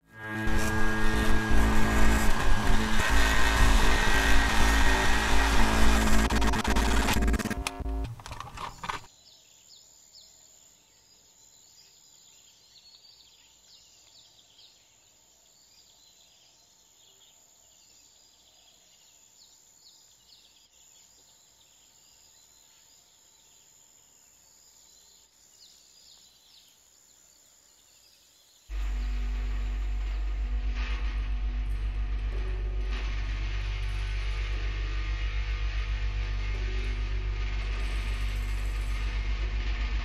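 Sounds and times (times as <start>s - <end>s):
music: 0.0s - 8.1s, 28.7s - 40.0s
thin high whine: 0.0s - 8.1s, 28.7s - 40.0s.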